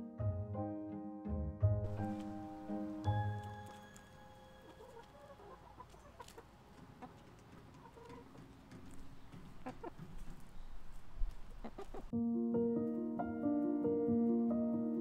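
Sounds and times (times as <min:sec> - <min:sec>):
hens clucking: 0:04.6 - 0:12.1.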